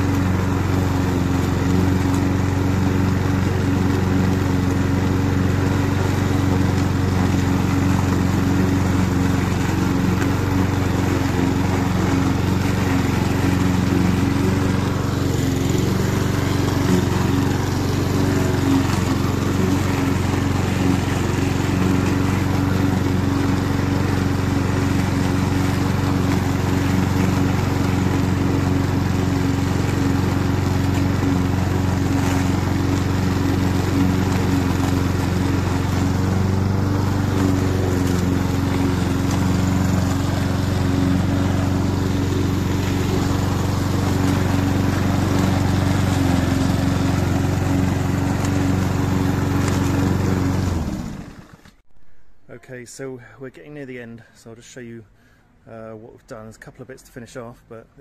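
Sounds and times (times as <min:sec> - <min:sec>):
lawn mower engine running: 0:00.0 - 0:52.6.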